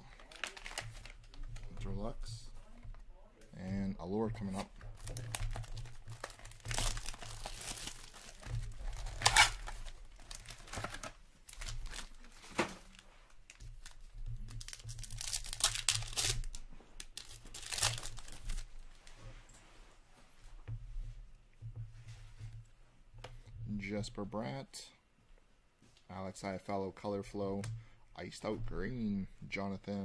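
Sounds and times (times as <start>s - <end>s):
wrapper crinkling and ripping: 0.0s - 1.8s, 5.0s - 19.1s.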